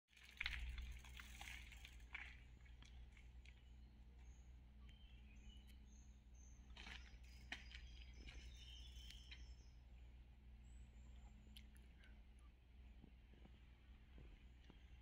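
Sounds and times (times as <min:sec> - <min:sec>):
low steady hum: 0:00.2 - 0:15.0
faint bird chirps: 0:02.9 - 0:13.1.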